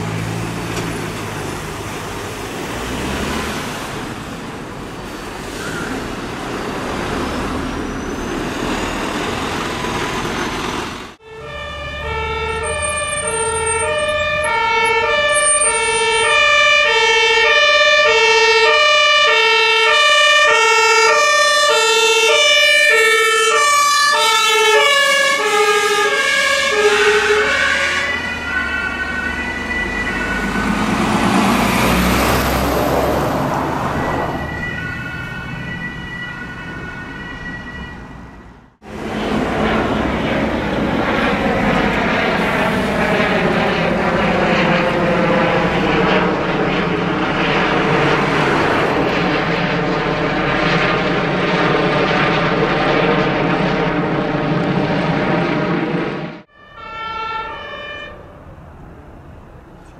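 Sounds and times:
vehicle rushing by: 0.0s - 16.9s, 24.9s - 36.2s, 38.8s - 56.5s
road noise: 0.0s - 59.9s
two-tone ambulance siren: 11.1s - 58.6s.

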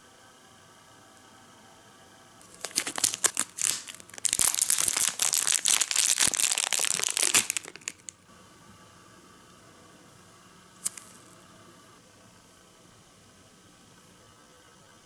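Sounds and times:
plastic bag crinkling: 2.4s - 8.2s.

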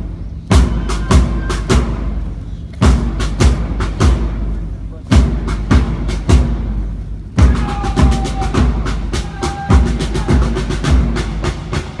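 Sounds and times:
bass drum strokes: 0.0s - 12.0s.

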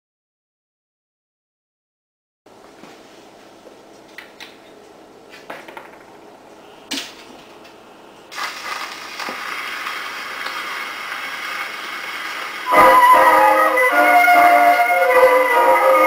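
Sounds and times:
record surface hiss: 2.5s - 14.7s.

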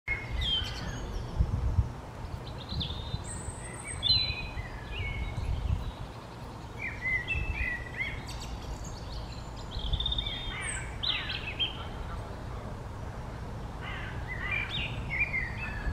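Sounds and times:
songbirds singing and chirping: 0.1s - 15.9s.

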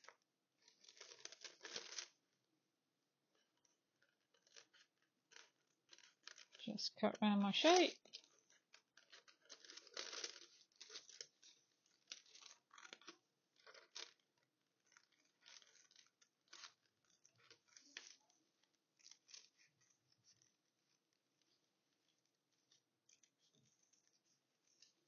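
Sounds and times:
paper crinkling: 0.6s - 2.2s, 7.6s - 25.0s.

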